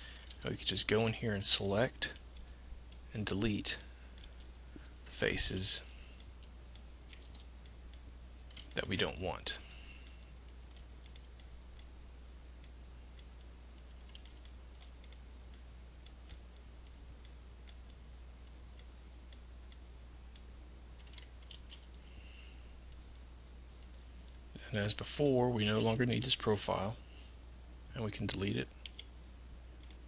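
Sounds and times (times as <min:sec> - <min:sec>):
steady low hum: 0:00.0 - 0:30.0
computer mouse clicks: 0:09.6 - 0:11.9, 0:12.6 - 0:22.0, 0:28.8 - 0:29.1, 0:29.8 - 0:30.0.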